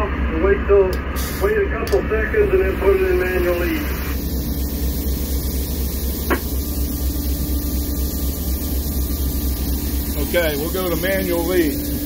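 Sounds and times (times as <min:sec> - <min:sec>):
diesel locomotive rumble: 0:00.0 - 0:12.0
constant hiss: 0:02.2 - 0:12.0.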